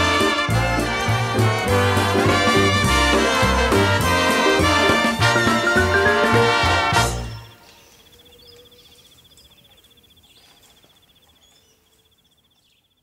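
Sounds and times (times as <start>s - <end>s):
brass band music: 0.0s - 7.6s.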